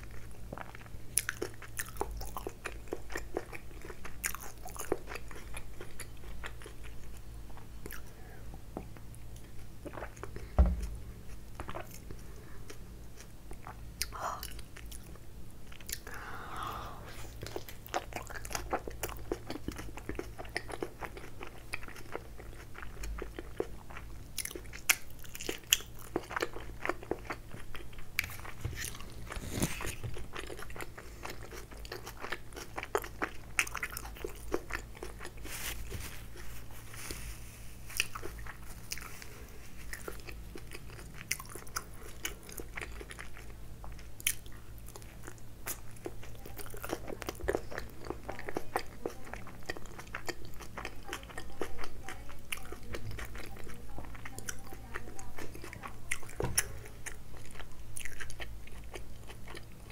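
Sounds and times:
biting and chewing: 0:00.0 - 0:08.1, 0:17.3 - 0:37.0, 0:37.8 - 0:59.9
thump: 0:10.6 - 0:11.0.

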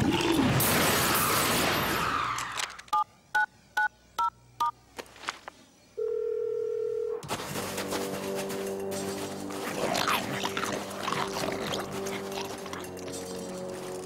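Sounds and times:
steady phone line tone: 0:06.0 - 0:07.2.

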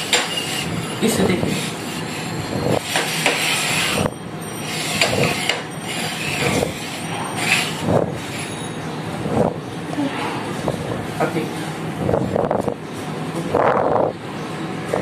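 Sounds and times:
bowls scraping on tabletop: 0:00.0 - 0:10.8.

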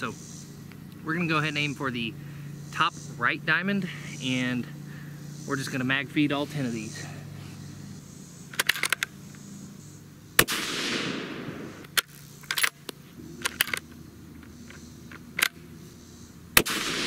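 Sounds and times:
rifle bolt clicking and clacking: 0:08.5 - 0:09.1, 0:11.8 - 0:15.6
rifle shots with rolling echo: 0:10.4 - 0:11.9, 0:16.6 - 0:17.0.

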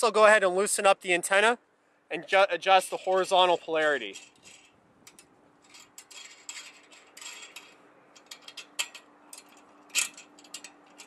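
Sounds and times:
metal clicks and scrapes: 0:02.7 - 0:11.0.

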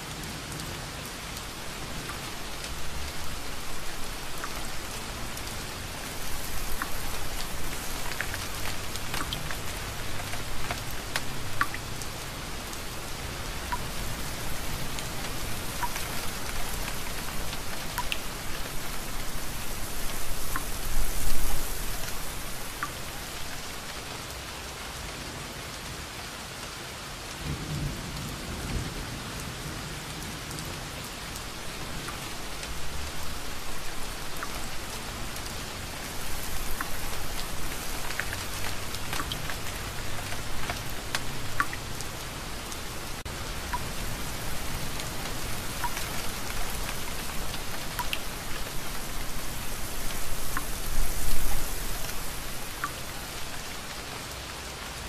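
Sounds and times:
steady rain: 0:00.0 - 0:55.0
raindrops ticking: 0:00.2 - 0:24.0, 0:31.4 - 0:54.0.

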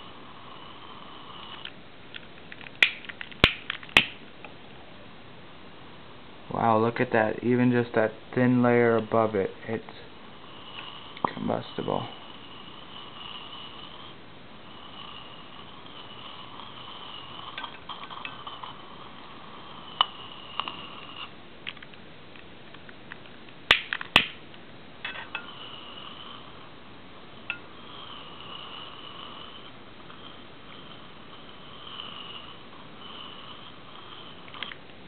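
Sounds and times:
hydrogen gas pops: 0:02.8 - 0:04.2, 0:23.7 - 0:24.4
faint high whine: 0:04.1 - 0:23.2, 0:24.3 - 0:35.0.

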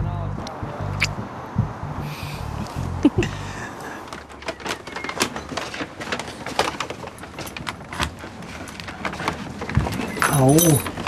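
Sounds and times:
paper bag rustling: 0:04.0 - 0:11.0.

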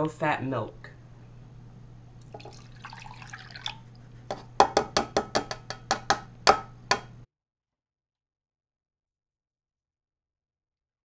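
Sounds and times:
milk pouring into saucepan: 0:02.2 - 0:03.9.

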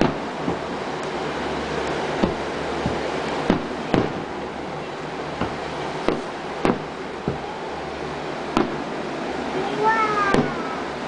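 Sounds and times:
firework shells bursting: 0:00.0 - 0:09.0
steady rushing background: 0:00.0 - 0:11.0.

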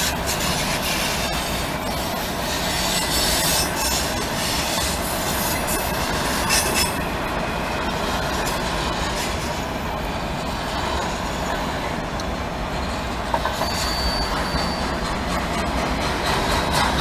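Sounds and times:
wheel squeal: 0:00.0 - 0:07.0, 0:13.3 - 0:15.4
freight train rumbling past: 0:00.0 - 0:17.0.

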